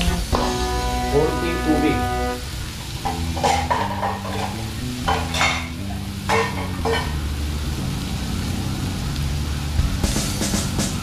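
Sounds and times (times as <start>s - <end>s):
food sizzling: 0.0s - 11.0s
spoon scraping frying pan: 3.0s - 7.2s.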